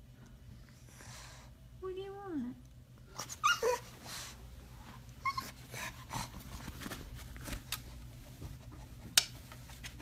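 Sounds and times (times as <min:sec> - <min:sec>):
dog whining: 0:03.1 - 0:04.3, 0:05.2 - 0:06.0.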